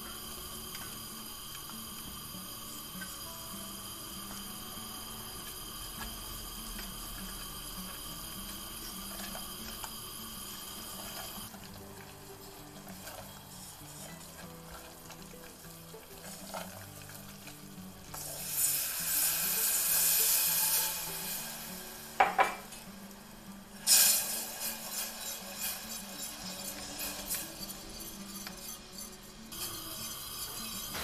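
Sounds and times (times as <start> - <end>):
milk pouring hissing splash: 0.0 - 31.0
quiet background music: 0.0 - 31.0
roux sizzling in oil: 0.0 - 31.0
spatula scraping saucepan: 12.5 - 17.5, 23.9 - 31.0.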